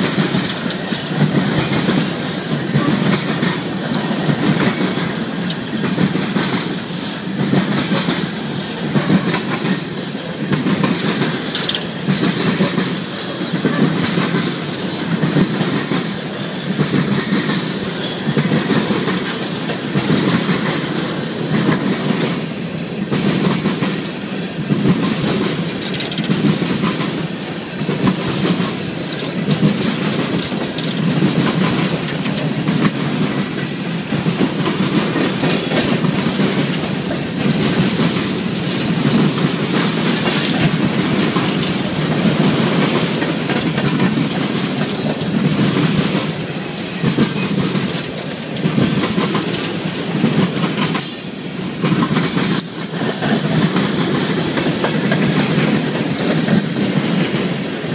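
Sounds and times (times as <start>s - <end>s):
train wheels rumbling on rail: 0.0s - 57.9s
wheels clicking over rail joints: 0.0s - 57.9s.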